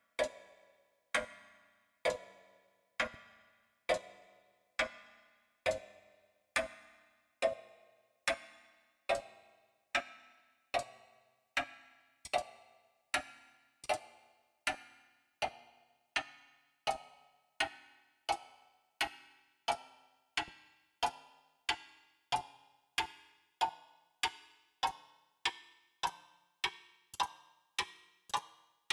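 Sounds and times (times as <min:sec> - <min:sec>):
clock ticking: 0:09.1 - 0:09.3, 0:22.3 - 0:28.9.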